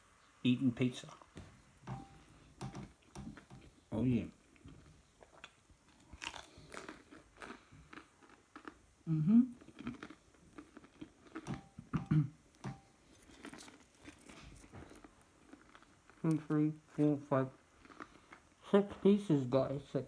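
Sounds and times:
person chewing crunchy food: 4.4s - 18.6s.

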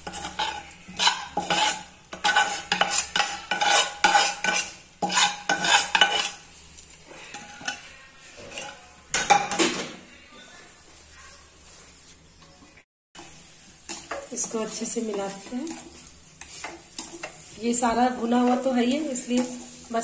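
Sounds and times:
steel spoon scraping steel pan: 0.0s - 6.5s, 7.2s - 9.4s, 13.9s - 20.0s
light sizzle from pan: 0.0s - 7.9s, 13.2s - 20.0s.

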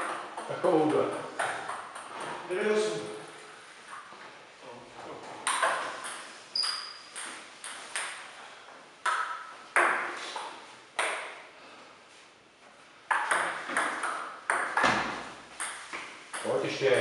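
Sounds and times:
table tennis ball hits: 5.4s - 8.3s, 9.0s - 11.5s, 13.1s - 16.6s.

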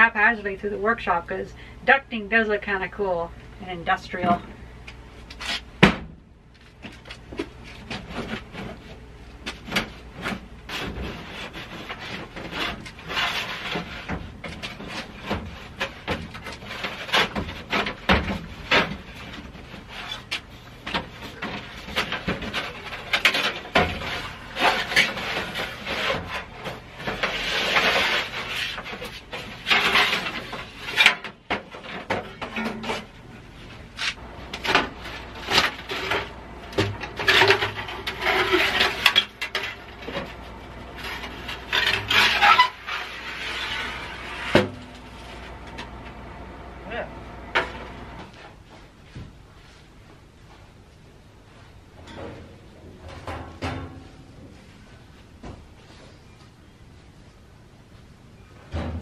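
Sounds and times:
metal clanks and knocks: 9.5s - 33.2s, 34.1s - 46.1s, 52.0s - 54.8s, 58.6s - 59.0s
thin metal pipe scraping: 34.0s - 45.5s.

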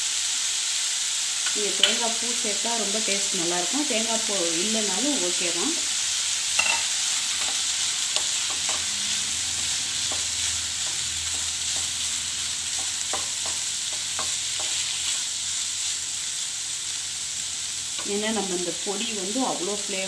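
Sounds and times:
pan sizzling: 0.0s - 20.0s
spatula scraping and tapping pan: 6.6s - 9.0s, 10.0s - 12.0s, 12.7s - 15.2s.

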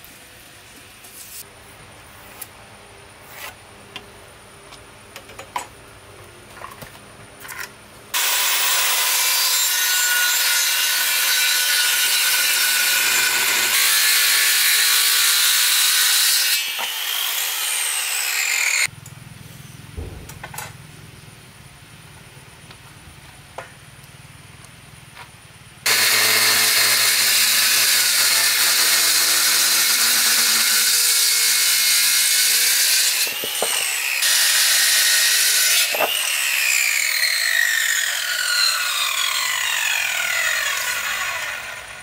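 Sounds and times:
circular saw cutting wood: 8.1s - 18.9s, 25.8s - 42.0s.

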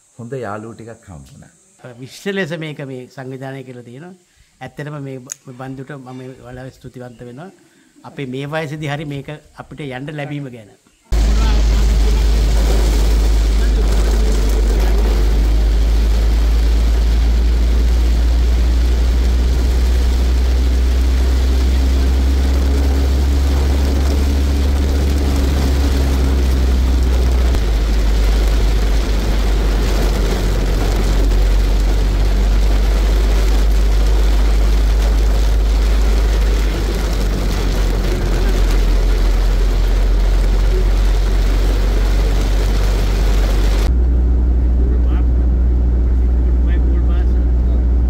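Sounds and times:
car engine and tyre rumble: 11.2s - 48.0s.

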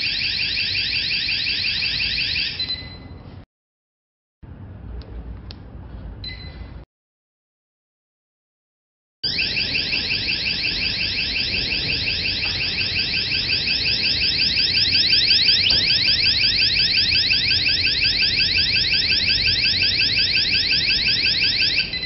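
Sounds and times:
electronic alarm siren whooping: 0.0s - 2.8s, 9.2s - 22.0s.

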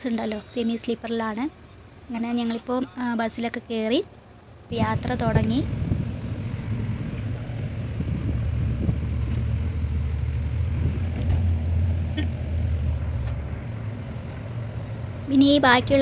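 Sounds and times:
bus engine and road rumble: 0.0s - 16.0s.

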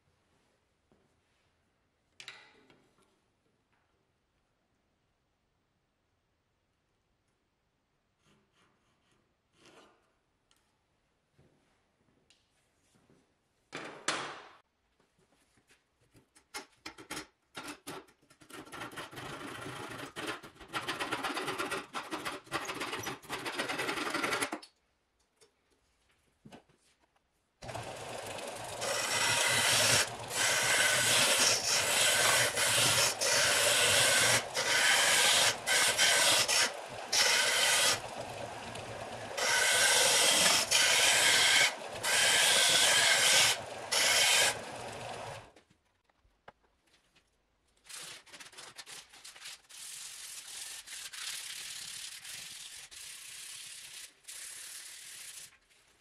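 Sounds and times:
belt sander running: 27.6s - 45.5s
rough scraping on wood: 28.8s - 38.1s.

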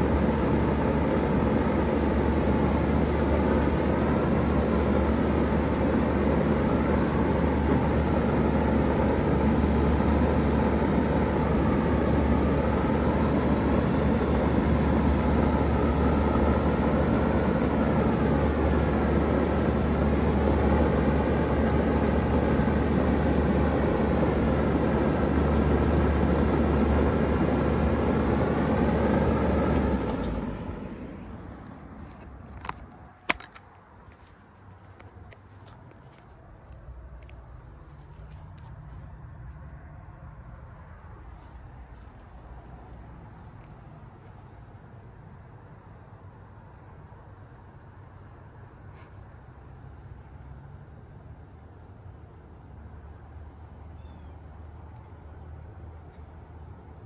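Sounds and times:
heat pump humming: 0.0s - 45.0s.

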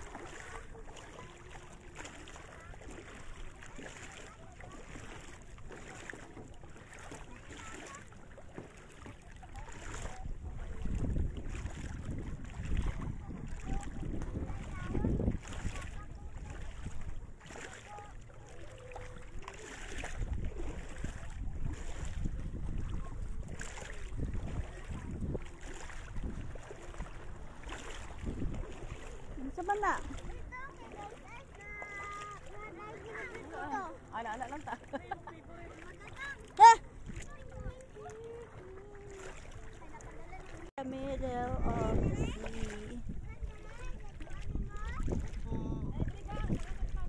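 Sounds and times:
shallow sea water washing: 0.0s - 47.0s
wind rumbling on microphone: 9.5s - 17.5s, 19.1s - 30.6s, 40.4s - 47.0s.

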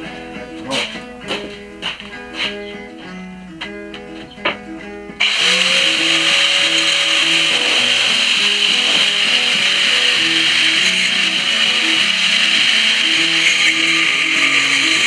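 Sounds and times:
banjo music: 0.0s - 15.0s
angle grinder running: 5.2s - 15.0s.

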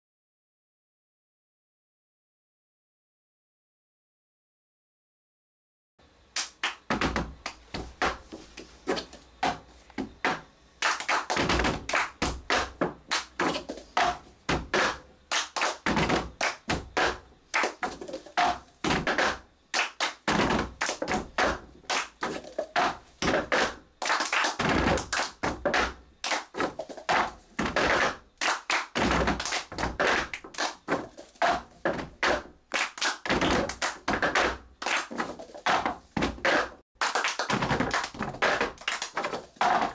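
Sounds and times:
hand taps and claps: 6.4s - 39.9s
plastic cups slammed on table: 11.3s - 15.0s, 33.2s - 39.9s.

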